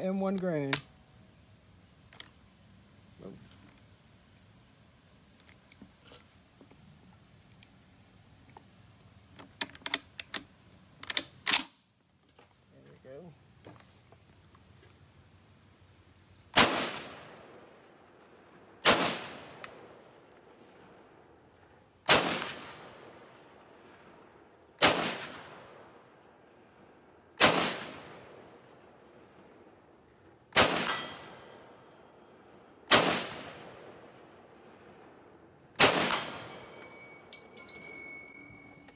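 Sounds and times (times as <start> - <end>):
rifle shots echoing: 16.5 - 17.8, 18.8 - 20.2, 22.0 - 23.7, 24.8 - 25.9, 27.4 - 28.8, 30.5 - 31.8, 32.9 - 35.0, 35.8 - 37.3.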